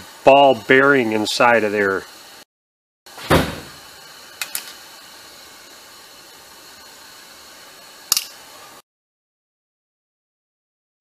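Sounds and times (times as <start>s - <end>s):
steady hiss: 0.0s - 2.5s, 3.1s - 8.8s.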